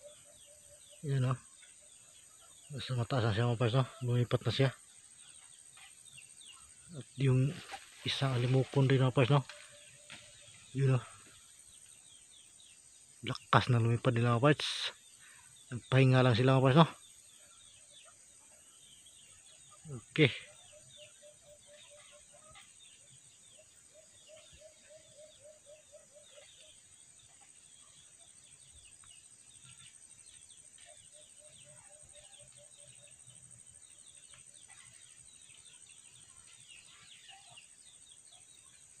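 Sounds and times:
low clucking bird calls: 13.2 - 38.8.

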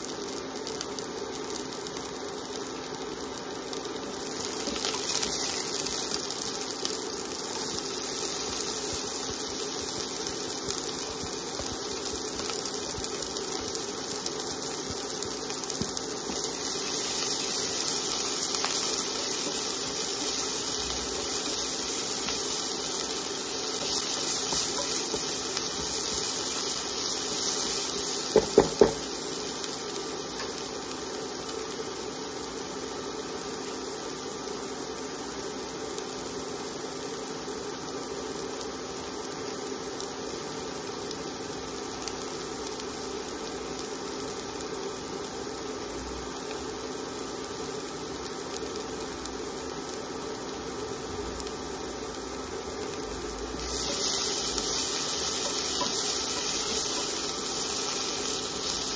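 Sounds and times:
vegetables sizzling in hot oil: 0.0 - 58.9.

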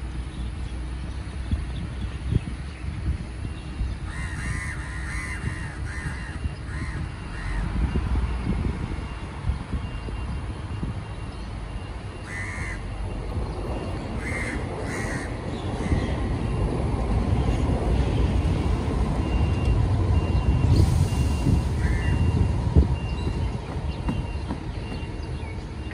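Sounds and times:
low vehicle rumble: 0.0 - 25.9
crows cawing: 4.1 - 7.6, 12.3 - 12.8, 14.2 - 16.1.

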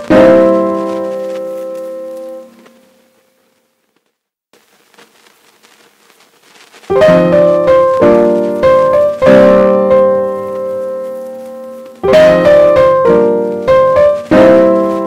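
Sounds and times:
solo piano chords: 0.0 - 3.3, 6.9 - 15.0.

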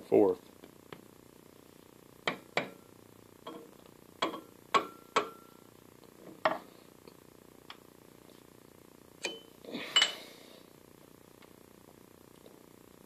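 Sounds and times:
hammer tapping metal shaft: 3.5 - 5.4.

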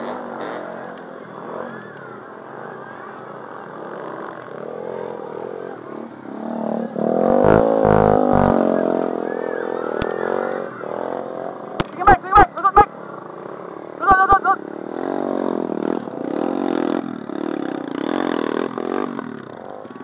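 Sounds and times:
dirt bike engines revving: 0.0 - 20.0
low thumps: 7.4 - 8.6.

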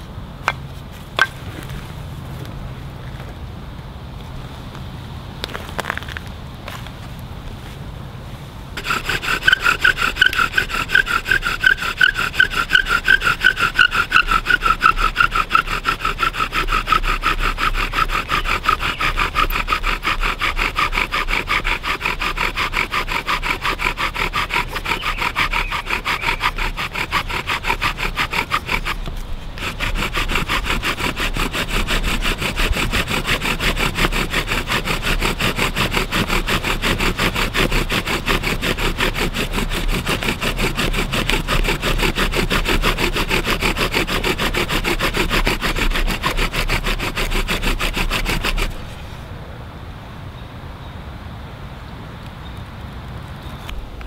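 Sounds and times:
bow drill grinding and squeaking: 8.8 - 49.3.

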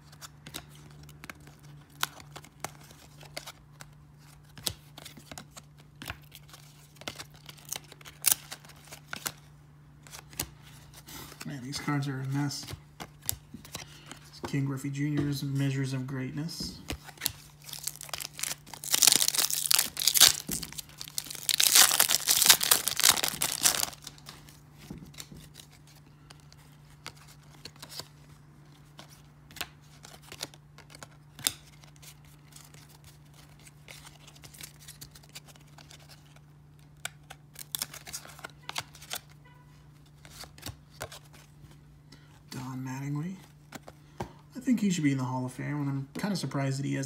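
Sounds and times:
paper wrapper tearing and crinkling: 17.1 - 24.3.

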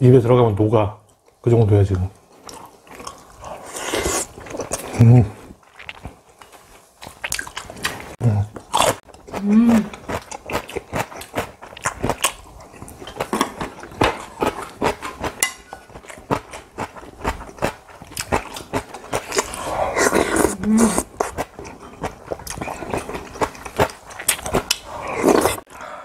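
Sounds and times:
slurping: 19.2 - 23.5.

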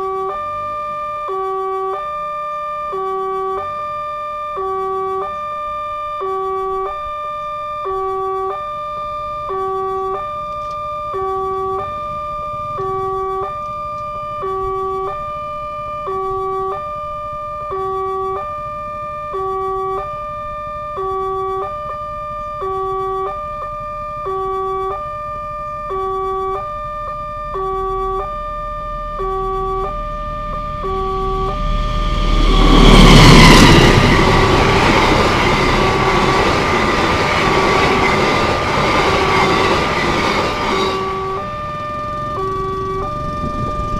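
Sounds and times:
two-tone crossing alarm: 0.0 - 43.9
low rumble: 28.4 - 43.9.

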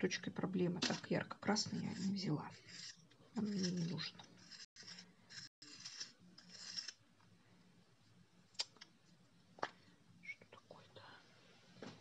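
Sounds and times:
pencils rustling on paper: 0.8 - 7.0.

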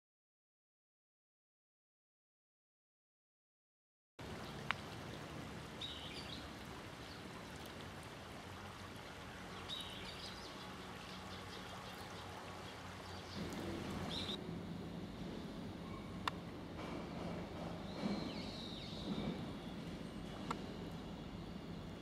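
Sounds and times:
river water flowing: 4.2 - 22.0
kingfisher calls: 9.5 - 14.4.

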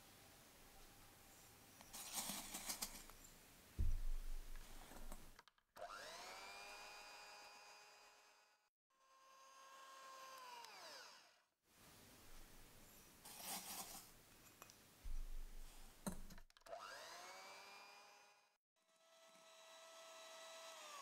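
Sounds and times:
faint knocks and handling: 3.8 - 5.6, 13.5 - 16.5
electric hand mixer whining: 5.8 - 11.4, 16.7 - 21.0.

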